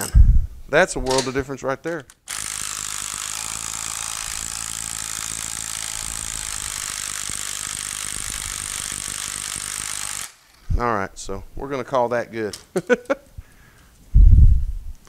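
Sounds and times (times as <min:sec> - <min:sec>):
cordless driver running: 0:02.1 - 0:10.7.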